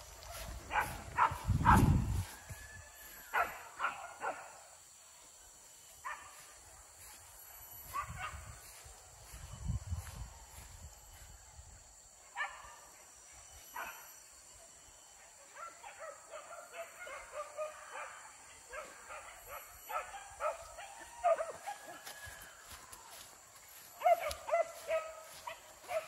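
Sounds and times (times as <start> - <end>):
hunting dogs yelping and baying: 0.2 - 4.6, 15.6 - 22.6, 23.9 - 26.0.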